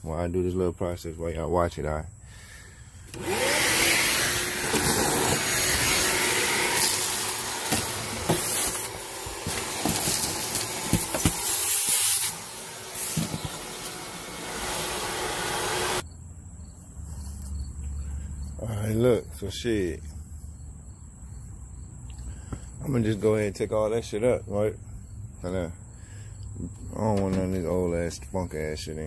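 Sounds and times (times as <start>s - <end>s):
debris clicking up vacuum hose: 3.1s - 14.1s
shop vacuum running: 3.1s - 16.0s.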